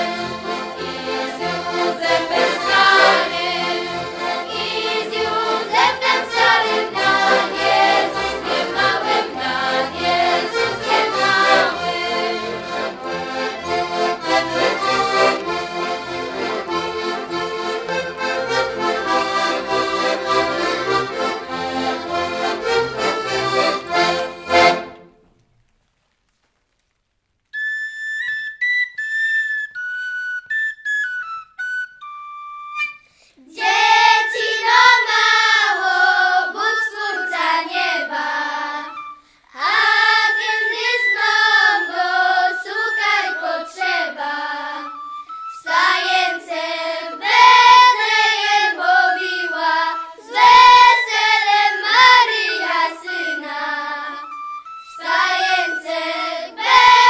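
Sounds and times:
young voices singing a carol: 0.0 - 24.0, 33.4 - 45.0, 45.6 - 57.0
high thin whistle melody: 27.5 - 35.6, 36.6 - 57.0.

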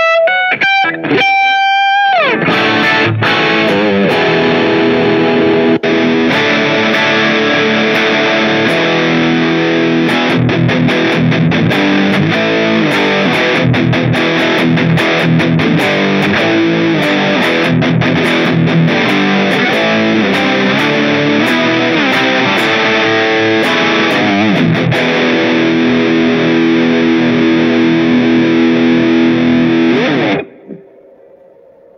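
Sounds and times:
distorted electric guitar: 0.0 - 31.9.

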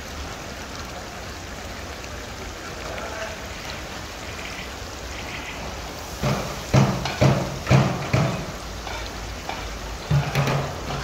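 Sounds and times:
food sizzling in a pan: 2.6 - 11.0.

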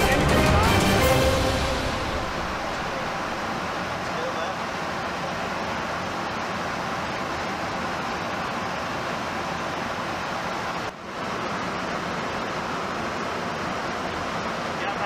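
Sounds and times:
airflow and engine roar in flight: 1.0 - 15.0.

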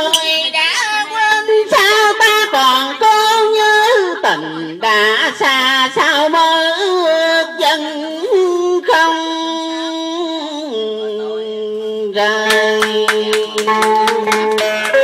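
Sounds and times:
man singing into microphone: 0.0 - 15.0
plucked string accompaniment: 12.5 - 15.0.

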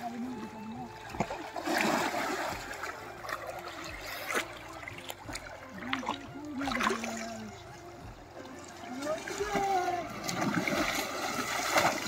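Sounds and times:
running river water: 0.0 - 12.0
small swimming splashes: 0.0 - 12.0
splash into water: 1.1 - 4.6, 9.2 - 12.0.

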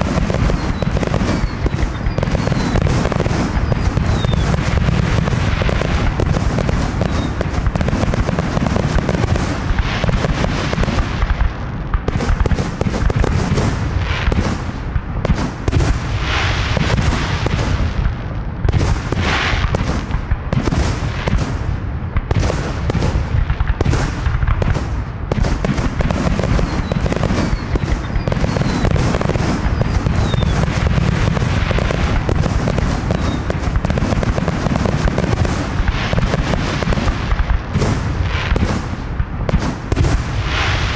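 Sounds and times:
fireworks hissing: 0.0 - 11.4, 25.9 - 39.0
fireworks booms and pops: 0.0 - 40.9
steady low rumble: 0.0 - 40.9.

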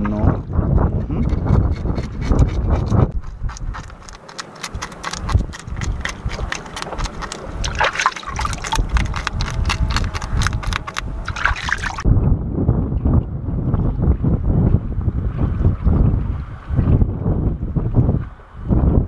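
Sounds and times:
knife scraping fish scales: 1.2 - 12.0
low rumble: 6.9 - 19.0.

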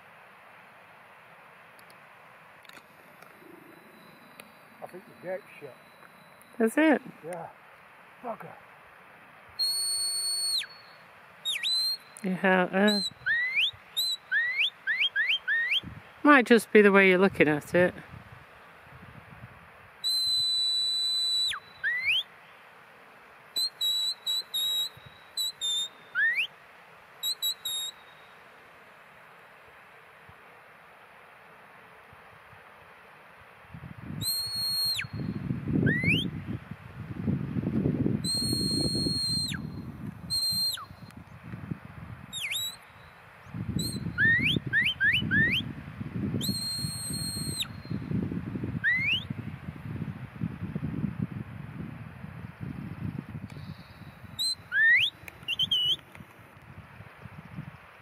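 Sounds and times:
high whistle commands: 3.8 - 6.7, 9.6 - 12.2, 12.9 - 15.9, 20.0 - 22.3, 23.6 - 26.5, 27.2 - 28.3, 34.2 - 36.3, 38.2 - 41.1, 42.3 - 43.1, 43.8 - 45.7, 46.4 - 48.1, 48.8 - 49.3, 53.6 - 56.0.

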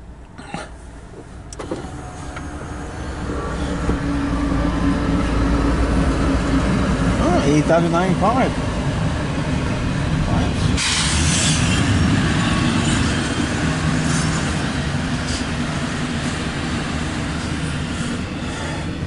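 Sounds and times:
freight train wheels rumbling: 0.8 - 19.0
rushing noise: 1.8 - 19.0.

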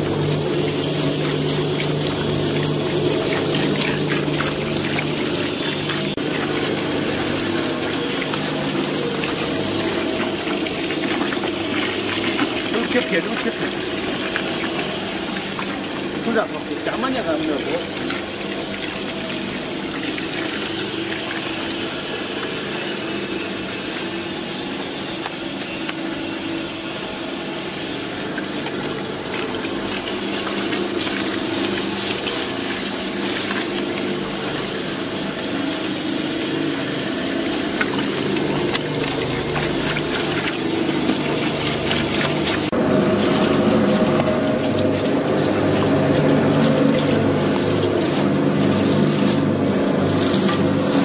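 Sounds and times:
low machine hum: 0.0 - 51.0.

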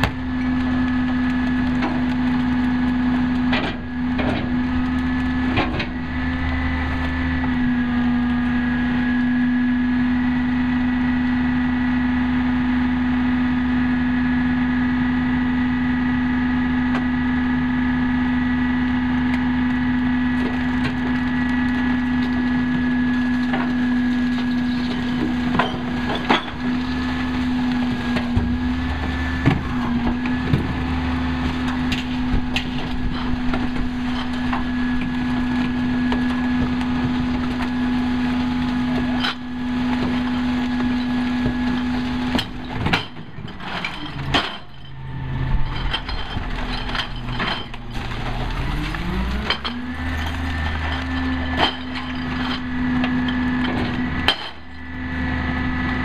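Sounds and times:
garbage truck humming: 0.0 - 56.0
recyclables clattering into hopper: 22.7 - 54.9.

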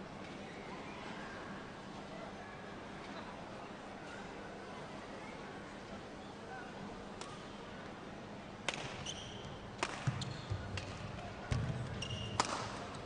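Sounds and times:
racket striking shuttlecock: 8.7 - 9.0, 9.8 - 12.8
shoe squeaks on court: 9.0 - 9.6, 12.0 - 12.4.

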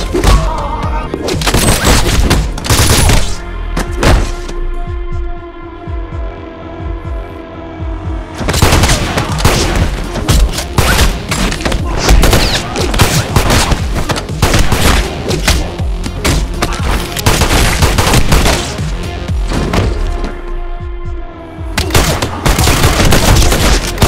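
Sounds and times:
rapid pistol gunshots: 8.6 - 9.9, 12.1 - 15.2, 17.2 - 18.9, 21.9 - 24.0.

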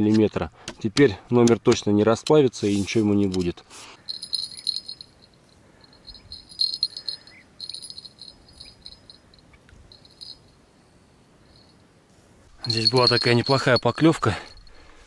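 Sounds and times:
insects chirping in trills: 4.0 - 14.8.

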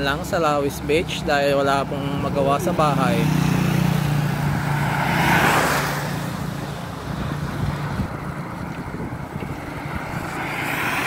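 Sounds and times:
wind buffeting microphone: 3.2 - 11.0.

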